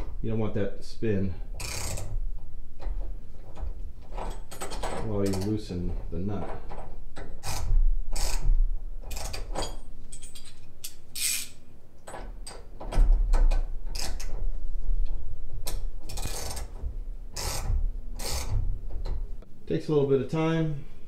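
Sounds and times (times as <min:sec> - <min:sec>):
ratchet wrench clicking: 0:01.6 - 0:02.1, 0:10.4 - 0:11.6.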